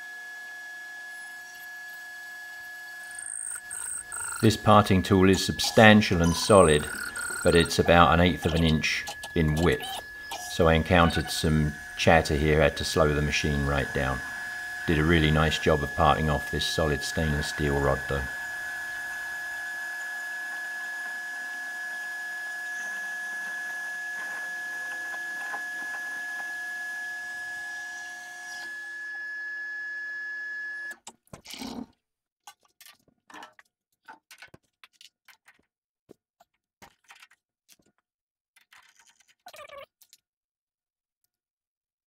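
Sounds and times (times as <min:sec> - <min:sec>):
metal lathe whining: 0:00.0 - 0:30.9.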